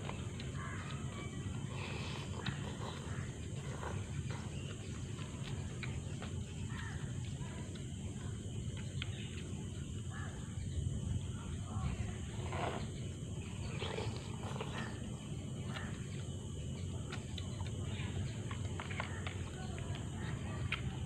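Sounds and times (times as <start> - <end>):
noodles slurped: 0.0 - 6.3, 12.3 - 16.0
chewing: 0.0 - 10.5, 12.0 - 21.0
low outdoor rumble: 0.0 - 21.0.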